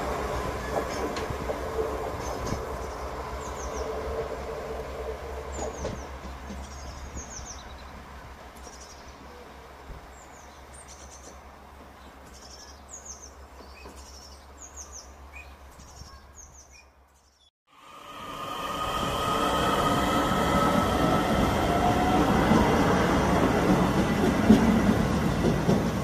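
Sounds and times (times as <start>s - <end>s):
diesel railcar rumble: 0.0s - 15.7s, 17.8s - 26.0s
train noise: 0.0s - 15.8s, 17.7s - 26.0s
small birds chirping: 5.5s - 8.0s, 8.6s - 9.5s, 10.1s - 17.5s.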